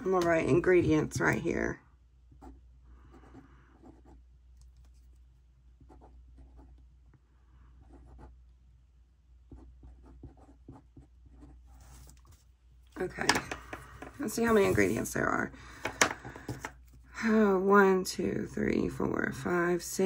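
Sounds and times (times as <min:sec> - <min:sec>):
pen scratching on paper: 0:02.3 - 0:05.2, 0:05.8 - 0:06.8, 0:07.8 - 0:08.4, 0:09.5 - 0:12.4, 0:14.1 - 0:15.2.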